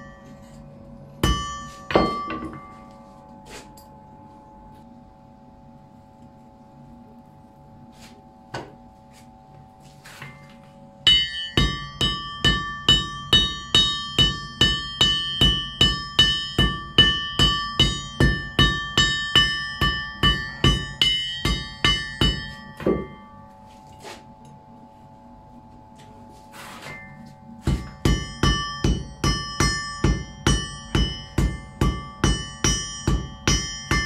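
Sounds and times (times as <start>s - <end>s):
forge air blower humming: 0.0s - 34.0s
hammer striking anvil: 1.2s - 2.9s, 11.1s - 23.5s, 26.8s - 34.0s.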